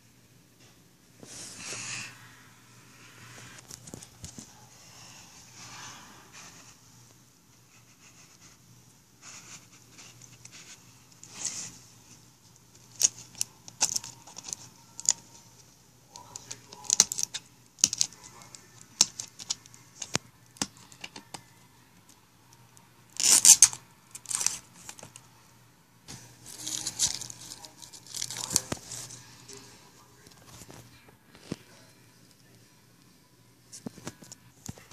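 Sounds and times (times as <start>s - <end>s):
plastic label crinkling: 3.5s - 4.6s, 9.3s - 21.5s, 23.1s - 25.3s, 26.1s - 31.6s.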